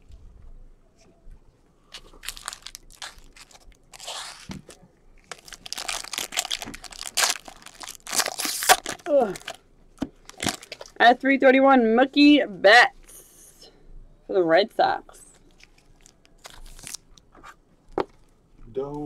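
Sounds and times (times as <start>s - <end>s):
plastic packaging crinkling: 1.9s - 11.0s, 15.4s - 17.3s.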